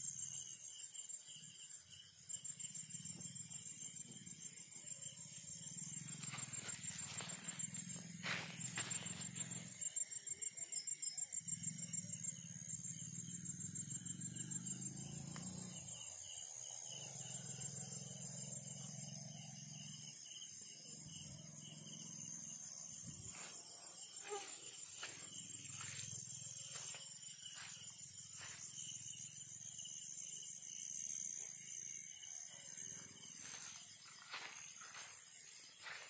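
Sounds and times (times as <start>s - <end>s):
crickets chirring: 0.0s - 36.0s.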